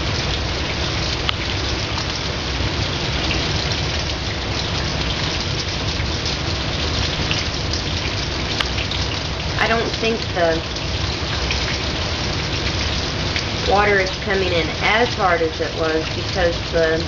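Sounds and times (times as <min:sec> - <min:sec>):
heavy rain pouring: 0:00.0 - 0:17.0
sharp tick of a raindrop: 0:01.1 - 0:02.2, 0:07.2 - 0:09.3.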